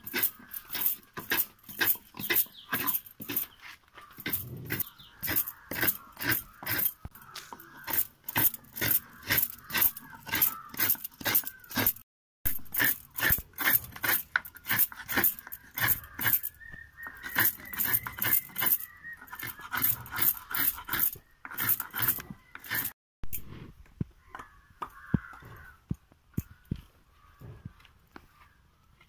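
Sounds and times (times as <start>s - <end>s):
coconut being grated by hand: 0.0s - 23.0s.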